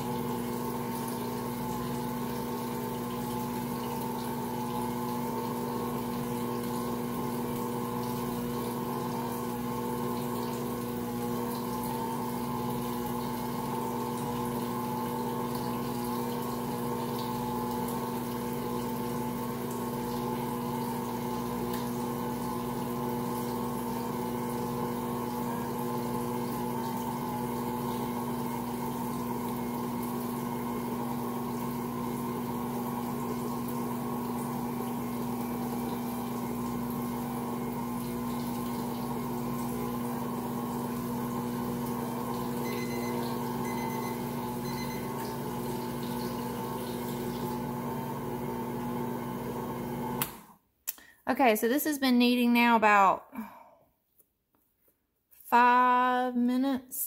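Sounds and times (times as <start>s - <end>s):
stand mixer motor humming: 0.0s - 50.5s.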